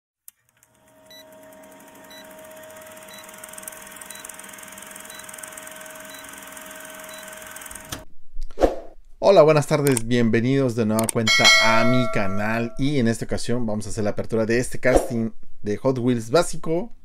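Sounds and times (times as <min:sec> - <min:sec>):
film projector rattle: 0:00.4 - 0:08.0.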